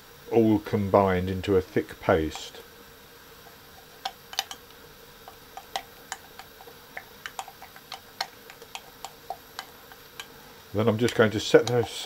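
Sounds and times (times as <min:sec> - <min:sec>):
utensil clicking against bowl: 0:03.5 - 0:12.0.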